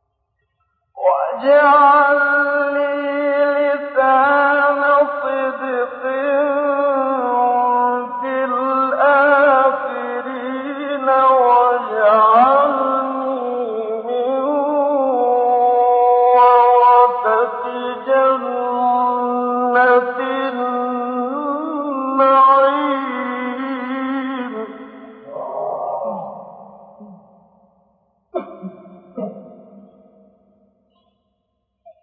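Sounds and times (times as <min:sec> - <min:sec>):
man chanting melodically: 0:01.0 - 0:27.2.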